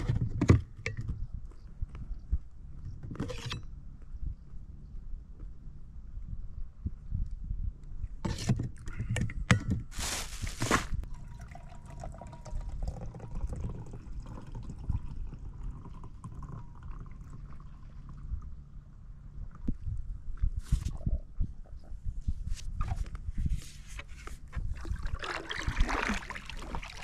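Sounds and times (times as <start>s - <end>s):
water splashing and trickling: 11.0s - 18.1s, 24.6s - 27.0s
short splashes: 24.8s - 27.0s.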